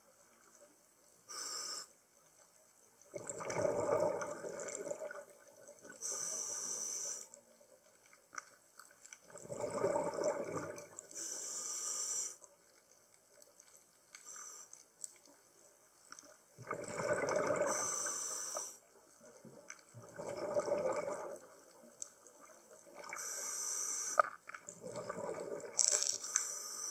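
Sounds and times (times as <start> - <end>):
diver breathing through regulator: 6.0 - 7.3, 11.1 - 12.4, 17.0 - 18.8, 26.0 - 26.9.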